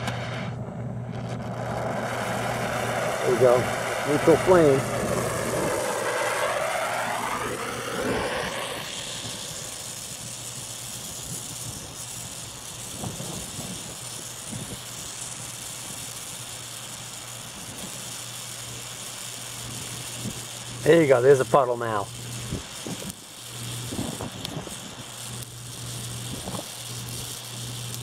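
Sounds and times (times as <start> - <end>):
welding torch hissing: 0.0 - 28.0
loud wavering sound: 0.2 - 10.0.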